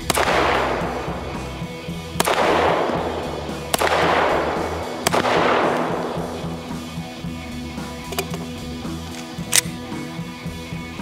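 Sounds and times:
pistol shots with echo: 0.0 - 7.0
banjo music: 0.1 - 11.0.

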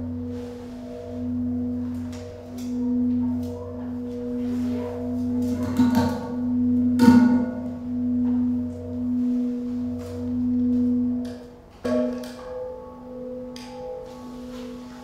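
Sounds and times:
singing bowl ringing: 0.0 - 15.0
steady low hum: 0.0 - 15.0.

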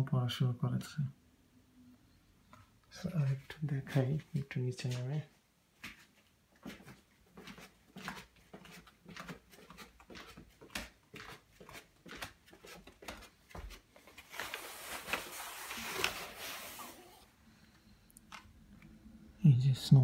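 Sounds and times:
footsteps going down stairs: 5.8 - 15.3.

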